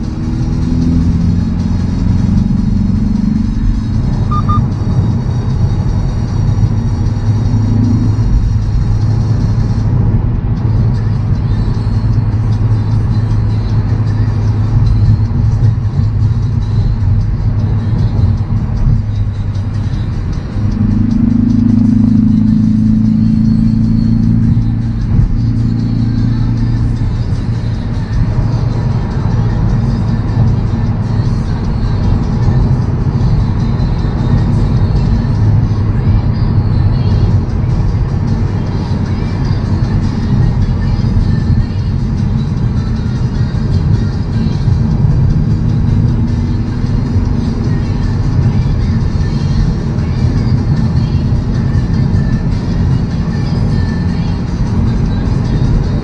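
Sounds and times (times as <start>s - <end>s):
car engine droning: 0.0s - 56.0s
music playing: 0.0s - 56.0s
tyre and road noise: 0.0s - 56.0s
short electronic beeps: 4.1s - 5.2s.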